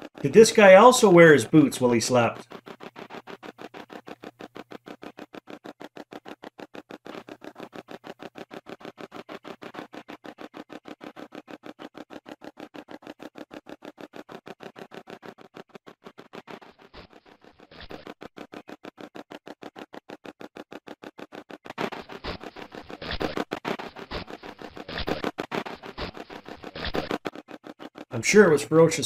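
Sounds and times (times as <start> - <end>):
radio static sweeping stations: 0.0 - 29.0.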